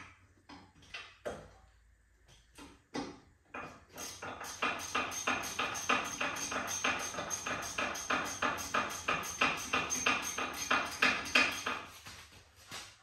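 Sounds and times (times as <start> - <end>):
hand ratchet clicking: 4.0 - 11.8.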